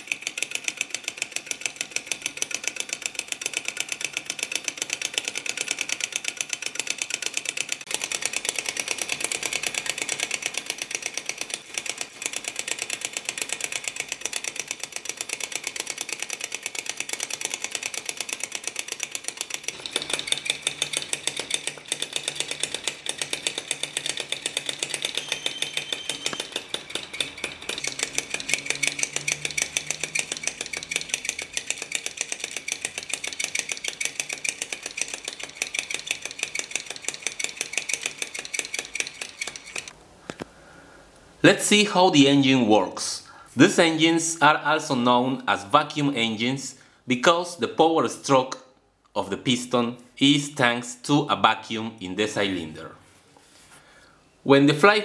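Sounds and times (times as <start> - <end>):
model engine rapid clicking: 0.0 - 40.0.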